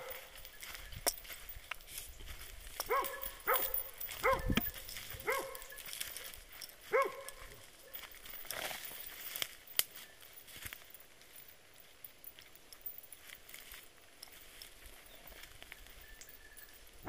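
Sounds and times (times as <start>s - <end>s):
dogs barking: 0.0s - 0.4s, 2.8s - 8.1s
twigs and brush crackling: 0.0s - 17.0s.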